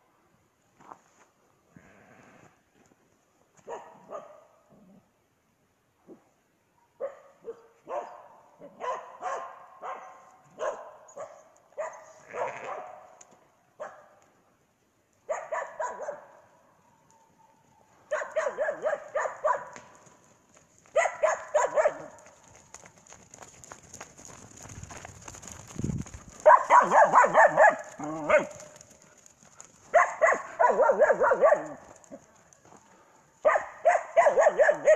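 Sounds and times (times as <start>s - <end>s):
dog barking: 3.6s - 4.6s, 7.0s - 13.2s, 13.8s - 14.2s, 15.3s - 16.5s, 18.1s - 19.8s, 20.9s - 22.2s, 26.4s - 28.6s, 29.9s - 31.8s, 33.4s - 34.9s.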